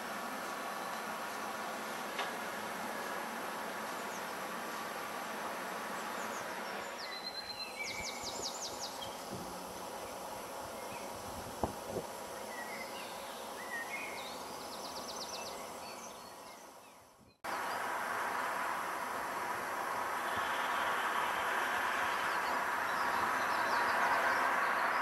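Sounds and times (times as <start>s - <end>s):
outdoor roadside background noise: 0.0s - 25.0s.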